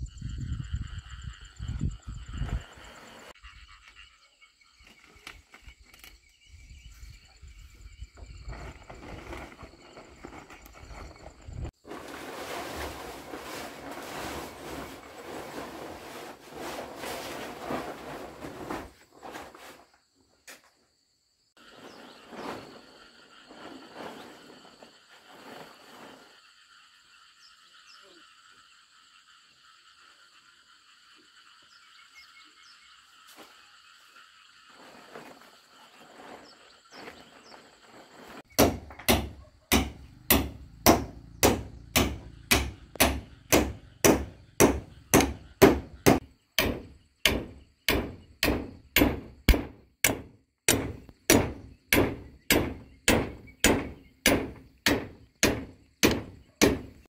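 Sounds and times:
insects trilling: 0.0 - 12.0, 19.8 - 57.0
nail hammered into wooden pole: 38.6 - 56.9.

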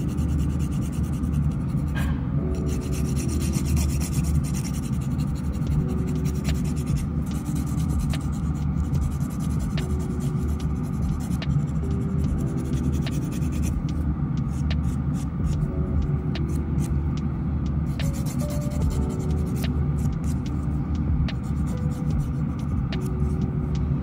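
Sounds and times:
steady low hum: 0.0 - 24.0
nail file rasping: 2.6 - 13.8.

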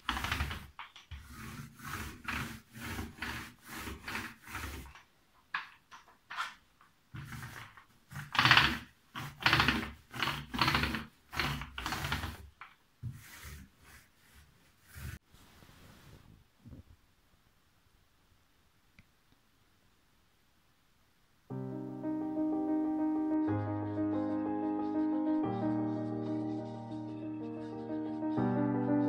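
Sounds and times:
paint roller rubbing on door: 0.0 - 16.3.

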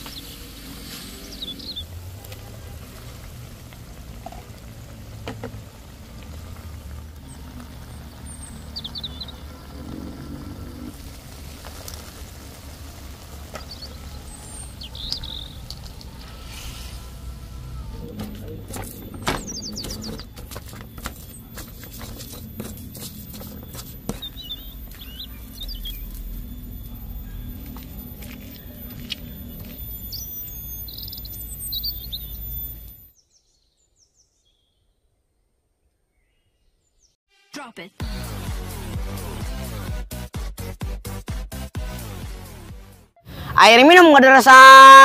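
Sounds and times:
small bird chirping: 0.0 - 1.9, 7.2 - 10.9, 13.5 - 18.1, 18.9 - 35.0.

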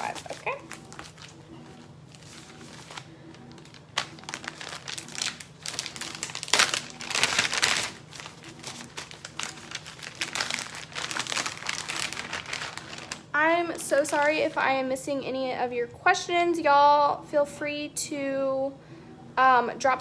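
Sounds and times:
plastic packets crinkling: 0.0 - 14.8.

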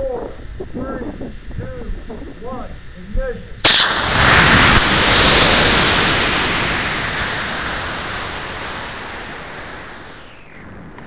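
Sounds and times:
air rushing past: 3.6 - 11.0
rocket motor burn rushing: 3.6 - 11.0
rocket motor ignition blast: 3.6 - 11.0.

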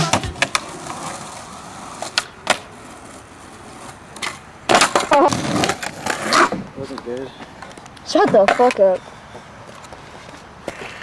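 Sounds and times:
skateboard clacks: 0.0 - 9.0
skateboard wheels rolling on concrete: 0.0 - 11.0
skateboard clattering on concrete ledge: 3.8 - 7.2, 8.1 - 9.0.

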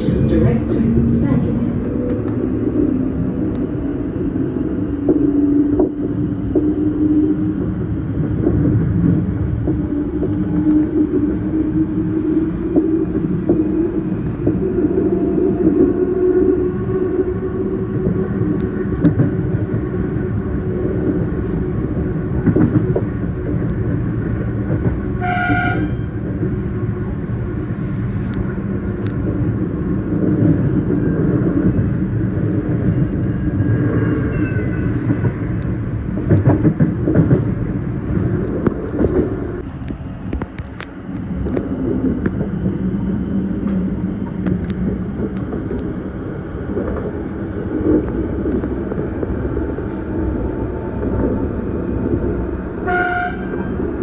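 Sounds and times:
electric train rumble: 0.0 - 54.0
train horn blast: 25.2 - 26.1, 52.8 - 53.7.

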